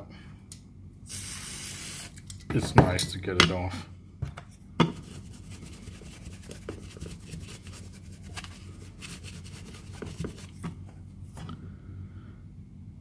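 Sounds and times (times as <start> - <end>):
brush scrubbing: 5.0 - 10.8.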